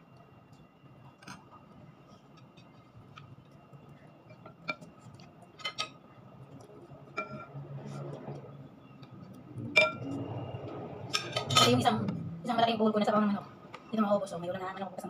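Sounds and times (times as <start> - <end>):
dishes clicking and clinking: 4.2 - 6.0, 7.1 - 7.6.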